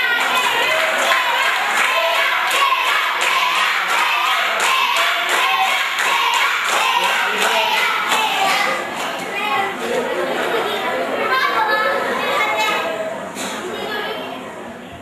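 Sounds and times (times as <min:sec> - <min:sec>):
hand claps: 0:00.1 - 0:09.2.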